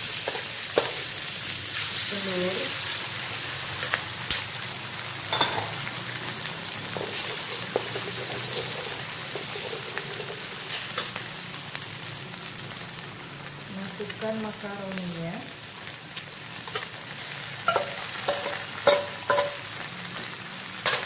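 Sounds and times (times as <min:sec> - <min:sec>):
eggs sizzling in a wok: 0:00.0 - 0:21.0
metal spatula scraping wok: 0:07.0 - 0:11.2, 0:17.6 - 0:19.7.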